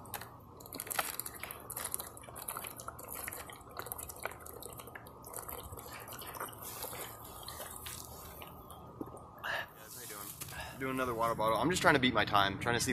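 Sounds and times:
plastic bottle crackling: 0.0s - 8.6s, 9.9s - 10.8s
person gulping water: 0.0s - 9.6s.

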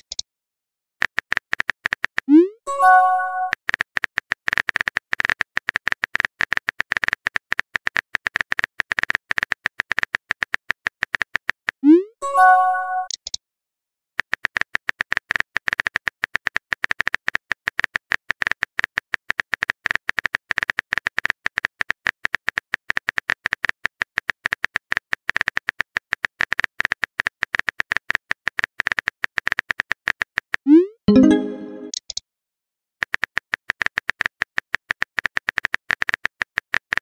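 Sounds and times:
message-sent chime: 2.7s - 3.5s, 31.1s - 32.0s.

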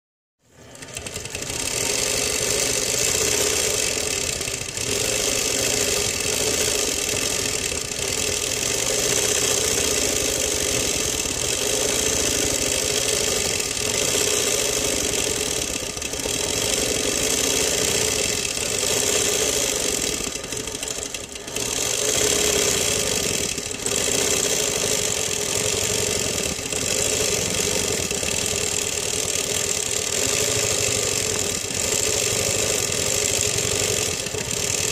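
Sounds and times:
quilting machine stitching: 0.4s - 34.9s.

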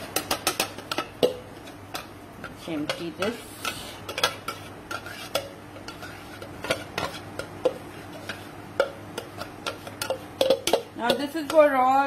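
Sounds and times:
metal spoon scraping a jar: 3.6s - 7.3s.

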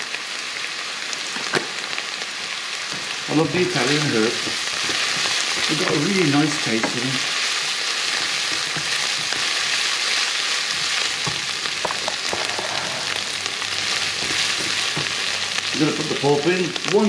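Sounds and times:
meat and onions sizzling in a pan: 0.0s - 17.0s
wooden spatula scraping a pan: 10.7s - 15.3s.

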